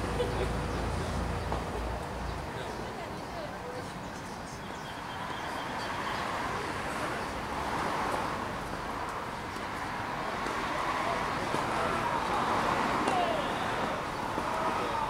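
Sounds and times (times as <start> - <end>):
distant voices: 0.0 - 15.0
outdoor background noise: 0.0 - 15.0.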